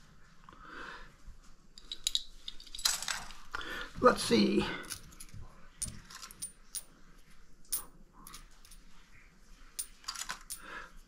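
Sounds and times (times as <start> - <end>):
coins clinking: 1.8 - 3.6, 4.8 - 7.0, 7.7 - 8.9, 9.8 - 10.8.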